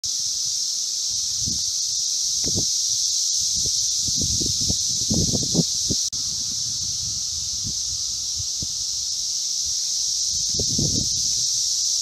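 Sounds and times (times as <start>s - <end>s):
cicadas droning: 0.0s - 12.0s.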